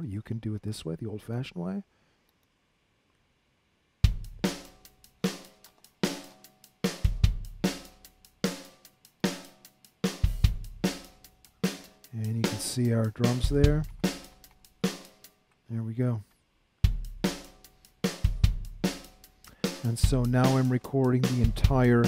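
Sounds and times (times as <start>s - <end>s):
drum kit beat: 4.0s - 15.4s, 16.8s - 22.0s.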